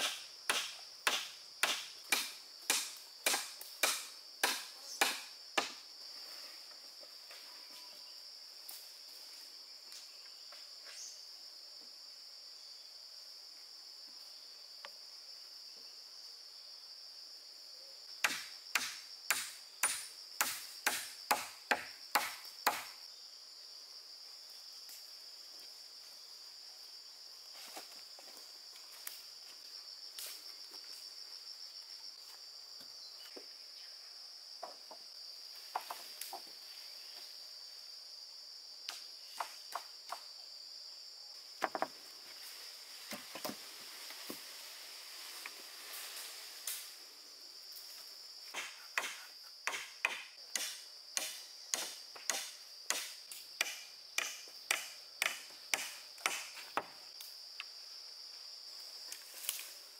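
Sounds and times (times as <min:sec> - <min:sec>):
sharp tool strikes: 0:00.0 - 0:05.7, 0:18.2 - 0:23.0, 0:48.5 - 0:56.6
high-pitched insect chorus: 0:00.0 - 0:59.9.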